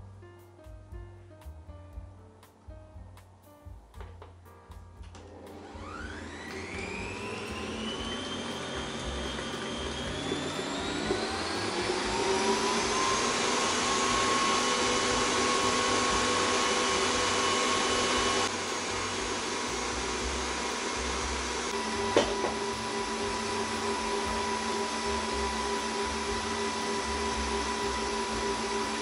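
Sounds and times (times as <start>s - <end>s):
stand mixer motor whining: 5.2s - 29.0s.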